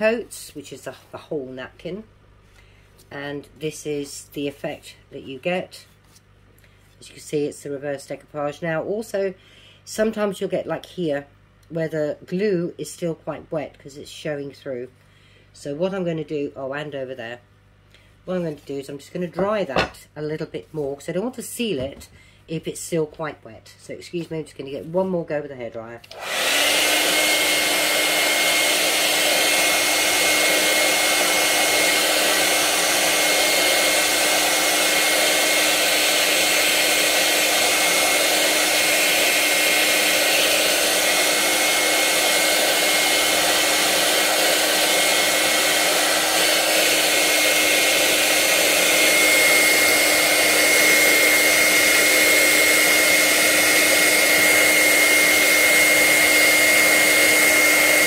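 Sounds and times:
hair dryer running: 26.0 - 58.0.

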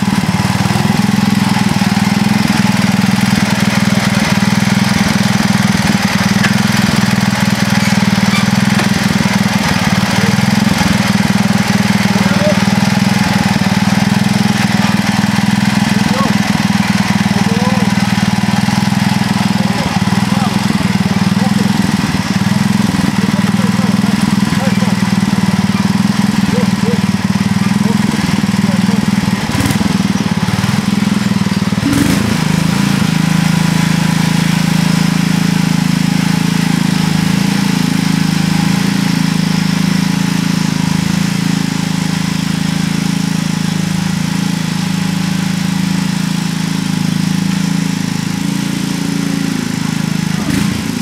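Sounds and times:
tractor engine running: 0.0 - 51.0
short clunks: 6.3 - 7.0, 7.7 - 9.2.

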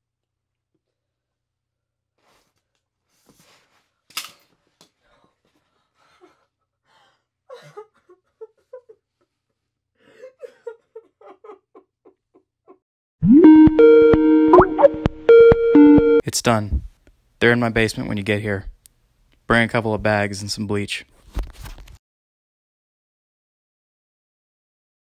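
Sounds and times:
woman breathing heavily and gasping: 5.0 - 7.9, 10.0 - 10.7.

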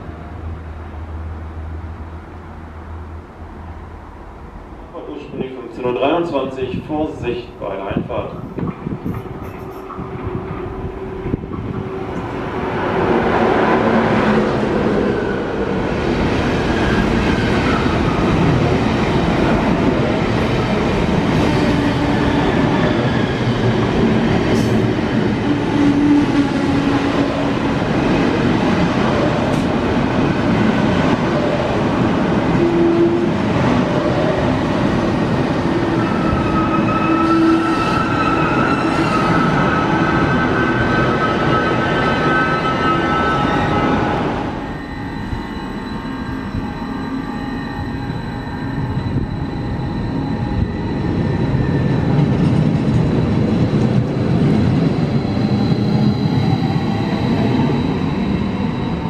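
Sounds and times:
train wheels rumbling on rails: 3.2 - 59.0
high brake squealing: 36.0 - 52.0.

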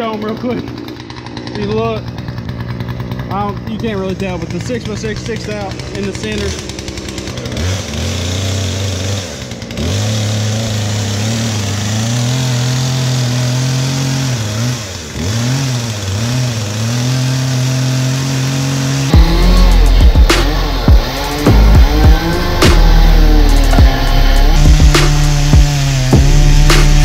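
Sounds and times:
chainsaw cutting wood: 0.0 - 27.0
loud low sound: 19.1 - 27.0.

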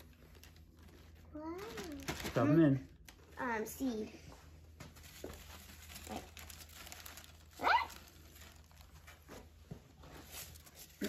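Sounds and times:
plastic bag rustling: 0.0 - 4.0, 4.7 - 11.0
child squealing: 7.6 - 7.9.

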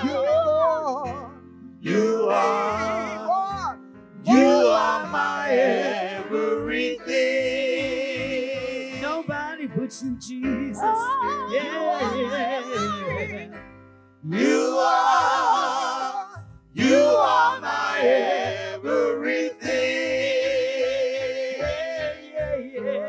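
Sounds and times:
instrumental backing with bass: 0.0 - 23.0
group singing worship song: 1.8 - 9.0, 11.4 - 13.6, 14.2 - 23.0.

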